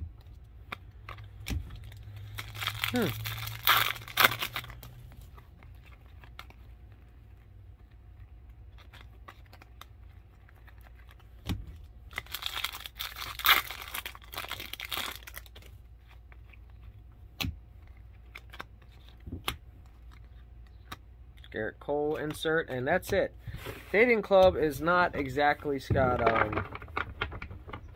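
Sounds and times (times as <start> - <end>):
cards shuffling: 0.0 - 27.9
wrapper tearing and crinkling: 1.1 - 6.6, 8.6 - 11.3, 12.1 - 16.4, 26.0 - 27.9.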